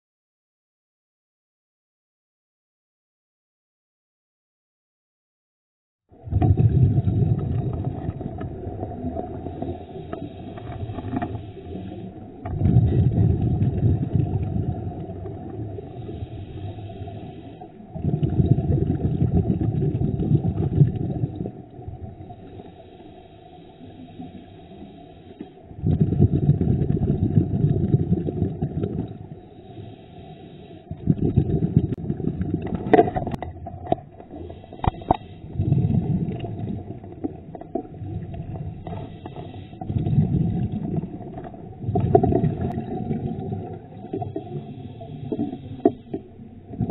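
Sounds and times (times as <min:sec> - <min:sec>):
underwater bubbling exhalations: 0:06.2 - 0:22.5, 0:25.6 - 0:29.4, 0:30.9 - 0:46.9
regulator inhalations: 0:09.4 - 0:12.4, 0:15.8 - 0:17.9, 0:22.4 - 0:25.7, 0:29.4 - 0:31.0, 0:34.3 - 0:35.6, 0:38.8 - 0:40.0, 0:44.1 - 0:46.3.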